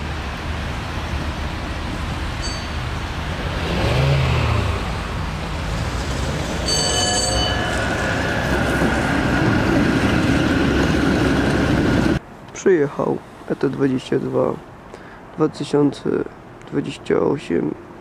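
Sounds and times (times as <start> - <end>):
tram rumbling past: 0.0 - 12.2
brief high ringing: 2.4 - 2.8, 6.7 - 8.3.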